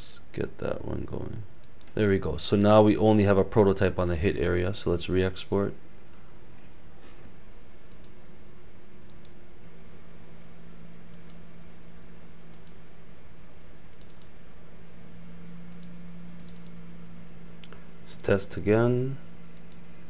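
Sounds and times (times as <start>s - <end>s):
low hum: 0.0s - 20.0s
mouse buttons clicking: 13.9s - 14.3s, 15.7s - 16.8s.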